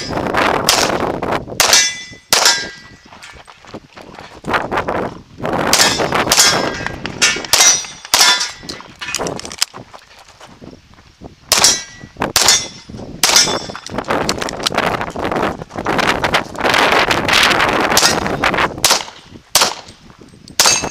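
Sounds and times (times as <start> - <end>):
pistol shots: 1.6 - 2.8, 5.7 - 8.6, 11.5 - 13.7, 18.0 - 20.0, 20.6 - 20.9
steel target plate clanging: 1.6 - 3.4, 5.8 - 9.4, 11.5 - 14.0, 19.1 - 20.9.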